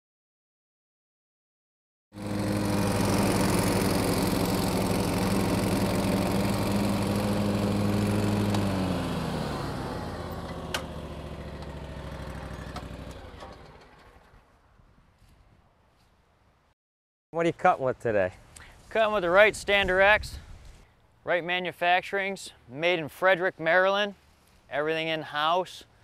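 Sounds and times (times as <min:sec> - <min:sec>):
mower engine running: 0:02.2 - 0:14.3.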